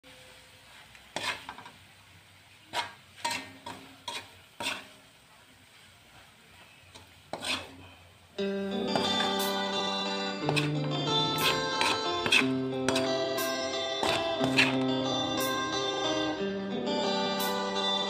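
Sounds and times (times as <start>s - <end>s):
food sizzling: 0.0s - 18.0s
spatula scraping a wok: 0.6s - 8.1s, 8.8s - 15.9s.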